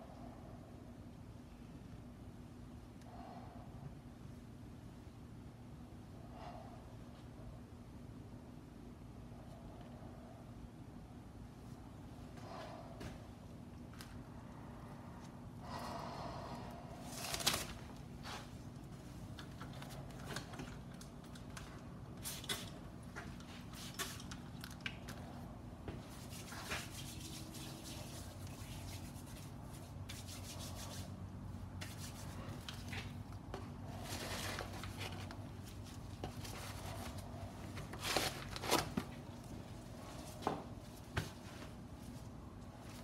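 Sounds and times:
steady low hum: 0.0 - 43.0
rustling and clicks of handling: 17.2 - 26.8.

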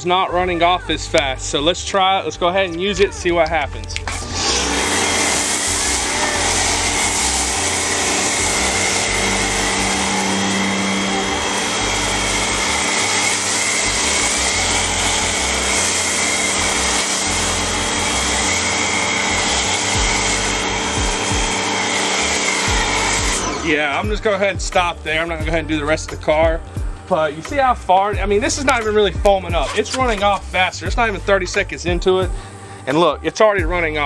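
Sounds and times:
pressure washer motor drone: 3.4 - 31.5
foam spray hissing: 4.2 - 24.0.

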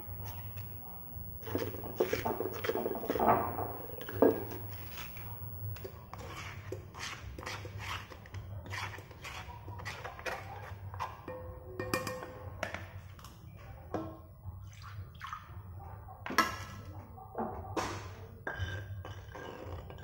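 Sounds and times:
knocks against mortar and pot: 1.4 - 5.5
spatula scraping stone mortar: 1.4 - 11.1, 18.5 - 20.0.

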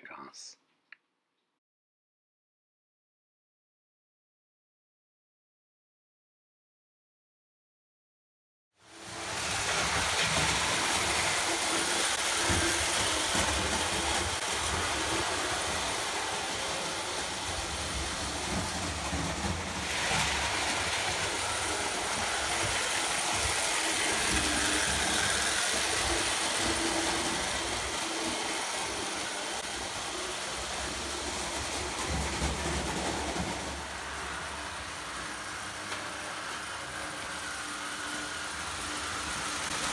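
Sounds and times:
toy trains running on track: 8.8 - 39.9.

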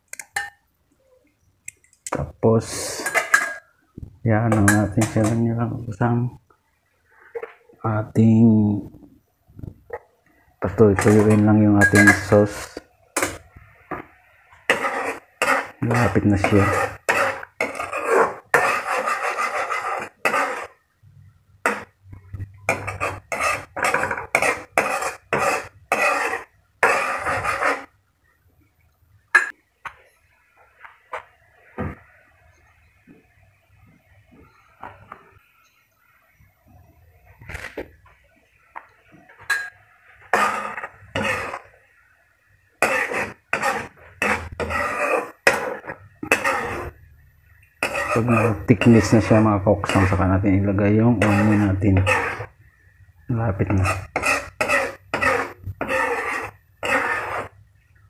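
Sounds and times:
metal ladle scraping in a wok: 10.9 - 13.5, 14.7 - 20.8, 21.6 - 21.9, 22.7 - 27.9, 39.5 - 41.8, 42.8 - 47.1, 47.8 - 52.6, 53.5 - 57.6.

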